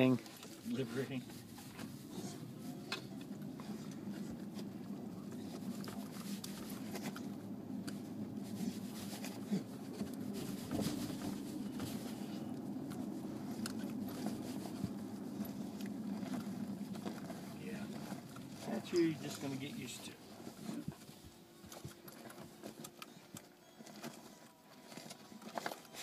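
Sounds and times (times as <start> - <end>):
road and tyre rumble: 0.0 - 26.0
dog pawing at carpet: 8.0 - 19.6.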